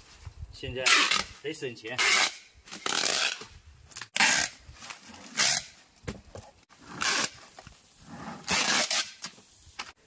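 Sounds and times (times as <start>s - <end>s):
packing tape pulled off roll: 8.4s - 9.9s.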